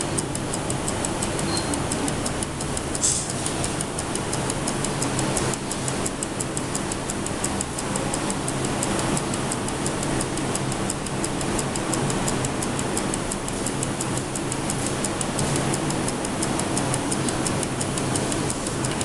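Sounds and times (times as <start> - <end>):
mechanical timer ticking: 0.0 - 19.0.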